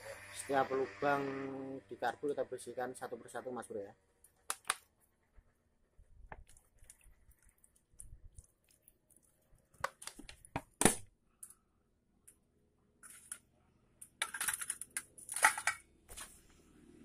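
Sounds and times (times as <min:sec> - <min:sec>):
metal parts clicking and knocking: 0:13.0 - 0:15.9.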